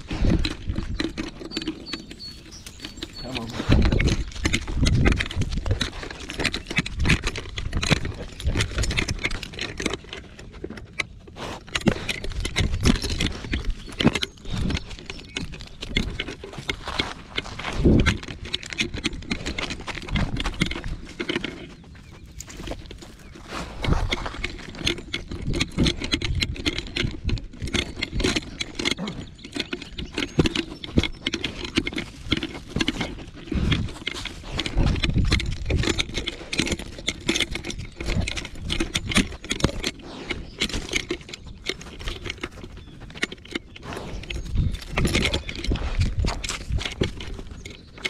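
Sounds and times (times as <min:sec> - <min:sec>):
paws on gravel: 0:00.0 - 0:48.0
metal collar jangling: 0:41.9 - 0:47.8.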